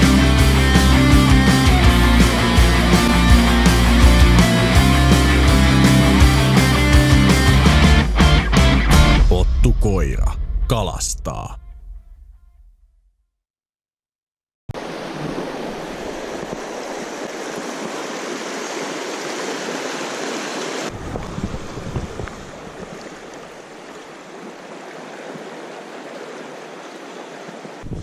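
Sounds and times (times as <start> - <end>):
river rapids rushing over rocks: 14.8 - 20.9
fast-running river water: 14.8 - 27.9.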